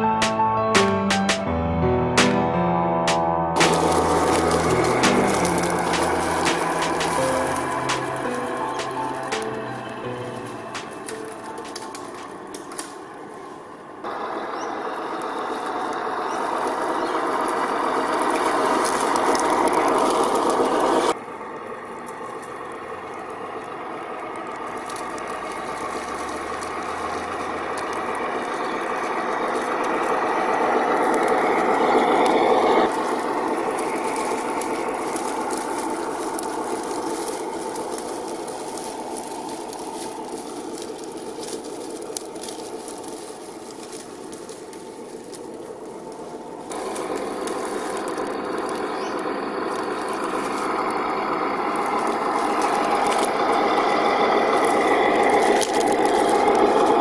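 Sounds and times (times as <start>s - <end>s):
leaves crackling under tyres: 2.2s - 57.0s
toy truck electric motor whining: 14.2s - 57.0s.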